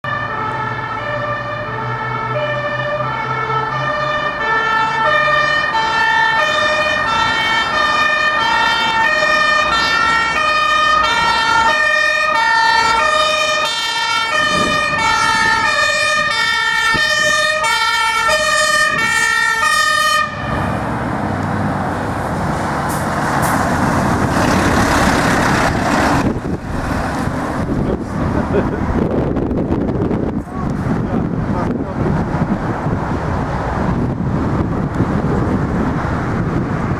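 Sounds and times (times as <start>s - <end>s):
fire truck two-tone siren: 0.0s - 21.0s
truck passing close by: 0.0s - 36.9s.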